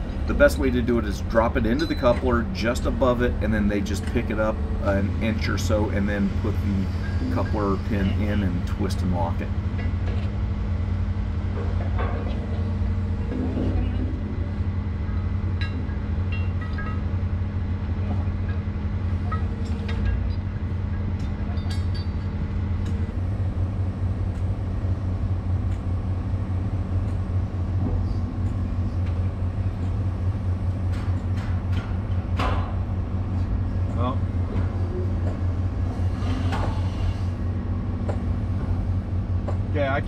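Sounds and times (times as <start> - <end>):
diesel engine running: 0.0 - 40.0.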